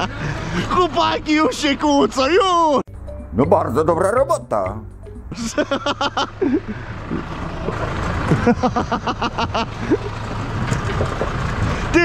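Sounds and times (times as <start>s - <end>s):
tractor diesel engine running: 0.0s - 12.0s
men calling out: 0.3s - 5.6s.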